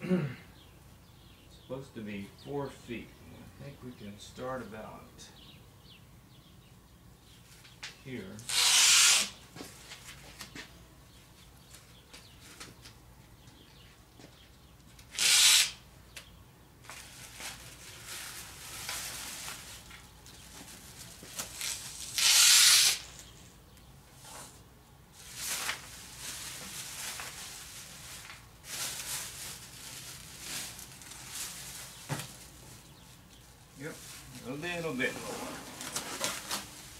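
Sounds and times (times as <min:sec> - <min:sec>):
plastic film rustling and crinkling: 0:16.8 - 0:23.3, 0:25.1 - 0:36.9.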